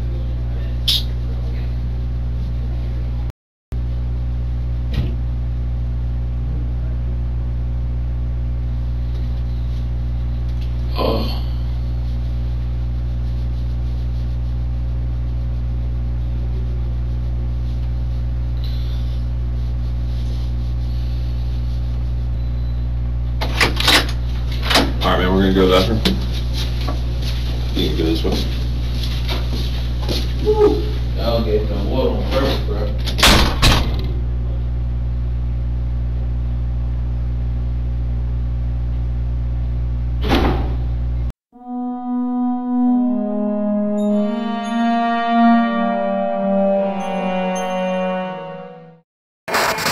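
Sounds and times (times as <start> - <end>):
low electrical hum: 0.0 - 41.3
brief thump: 40.2 - 40.8.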